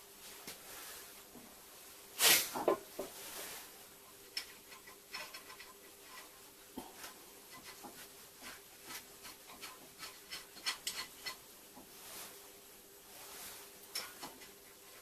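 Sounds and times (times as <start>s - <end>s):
light taps on steel plates: 13.8s - 15.0s.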